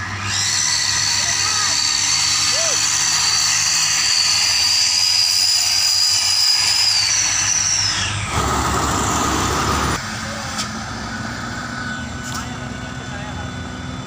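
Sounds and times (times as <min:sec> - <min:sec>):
pickup truck engine: 0:00.0 - 0:14.0
heavy truck passing rumble: 0:08.2 - 0:14.0.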